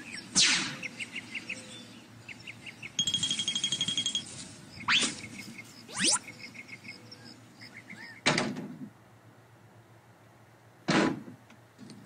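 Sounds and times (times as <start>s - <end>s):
bird chirps: 0.0s - 8.3s.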